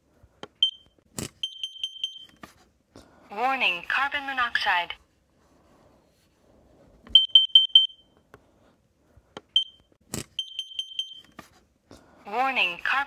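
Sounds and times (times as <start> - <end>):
alarm beeping: 1.4 - 2.3, 7.2 - 8.1, 10.4 - 11.3.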